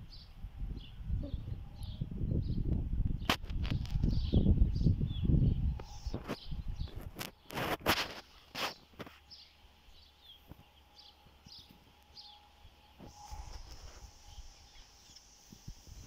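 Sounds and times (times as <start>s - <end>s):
wind rumbling on microphone: 0.0s - 8.2s, 13.0s - 16.0s
dogs rustling in grass: 7.0s - 9.4s, 13.0s - 16.0s.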